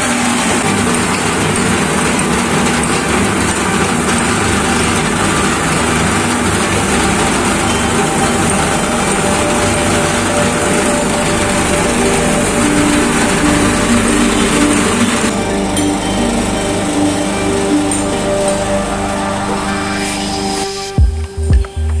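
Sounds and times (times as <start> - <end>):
vibrating table buzzing: 0.0 - 21.9.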